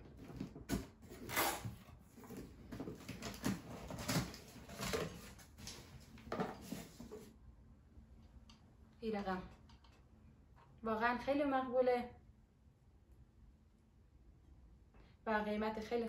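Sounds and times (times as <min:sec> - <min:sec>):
cardboard flaps rustling and scraping: 0:00.0 - 0:07.3.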